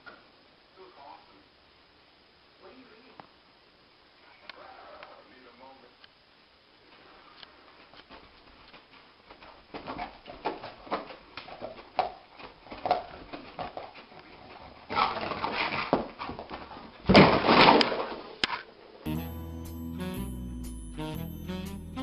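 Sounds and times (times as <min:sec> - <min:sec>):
dog scrambling thumps: 0:08.1 - 0:18.3.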